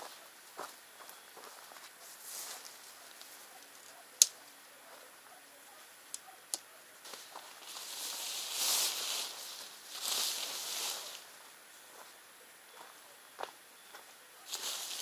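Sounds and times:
tent rainfly rustling: 0.0s - 6.4s, 7.0s - 12.9s, 14.4s - 15.0s
hissing swish of fabric: 7.2s - 11.3s.

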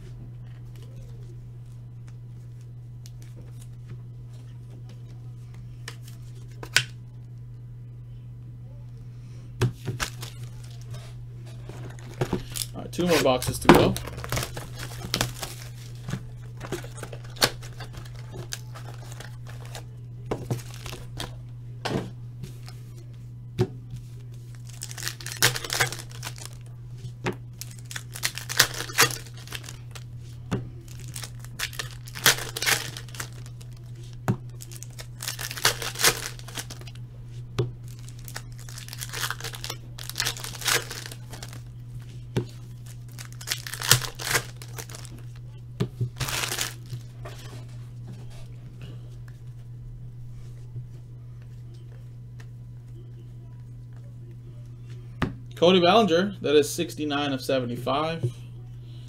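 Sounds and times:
steady low hum: 0.0s - 59.0s
packaging tearing and crinkling: 9.9s - 11.0s, 11.7s - 19.9s, 20.5s - 21.3s, 24.5s - 26.7s, 27.6s - 30.1s, 30.8s - 37.0s, 37.8s - 41.7s, 42.6s - 45.4s, 46.1s - 47.1s.

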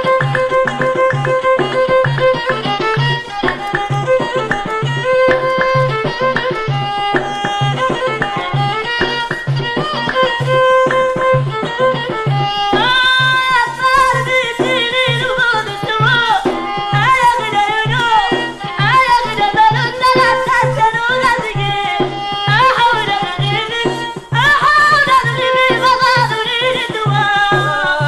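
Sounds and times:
fiddle melody: 0.0s - 28.0s
hand drum beat: 0.0s - 28.0s
person singing: 0.0s - 28.0s.

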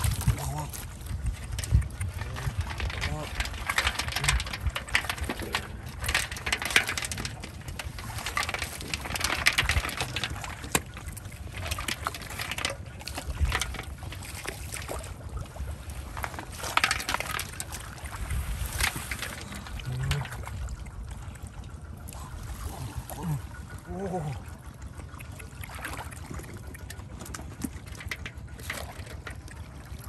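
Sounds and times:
muddy water splashing: 0.0s - 30.0s
plastic basket dragged through water: 15.8s - 20.4s.

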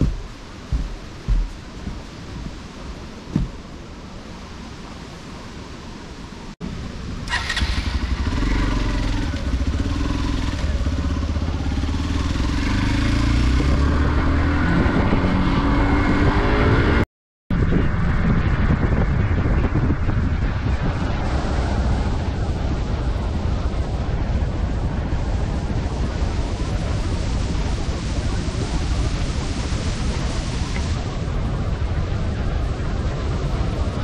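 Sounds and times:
motorcycle engine running: 0.0s - 2.1s, 7.3s - 13.0s
wind noise on microphone: 0.0s - 34.0s.

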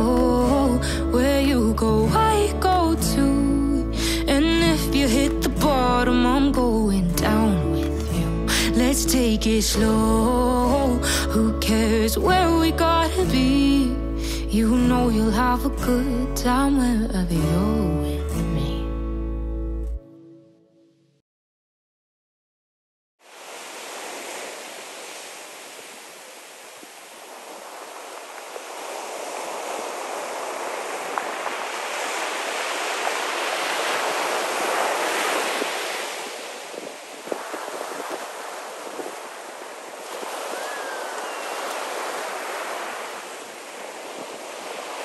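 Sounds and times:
ocean surf breaking: 23.2s - 45.0s.

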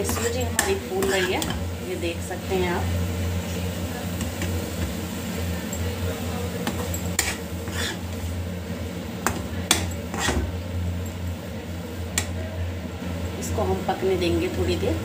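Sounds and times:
ladle scraping metal pan: 0.0s - 1.6s, 6.7s - 8.3s, 9.3s - 10.5s
steady low hum: 0.0s - 15.0s.

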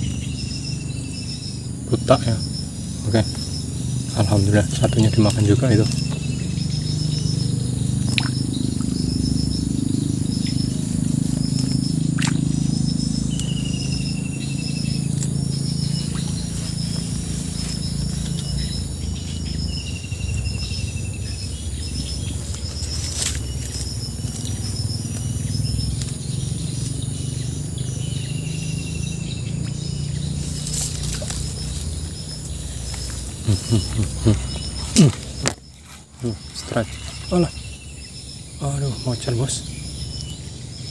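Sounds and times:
bird chirping: 0.0s - 40.9s
high insect drone: 0.0s - 40.9s
falling bird call: 32.9s - 35.6s.

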